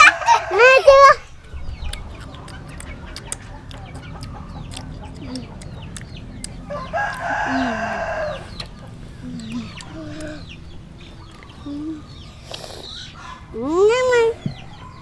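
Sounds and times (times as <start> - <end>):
rooster crowing: 0.0 - 1.2, 6.6 - 9.0.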